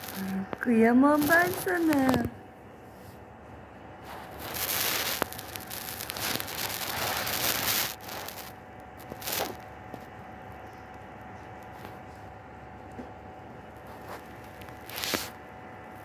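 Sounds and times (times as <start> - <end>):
cat licking and grooming: 4.0 - 16.0.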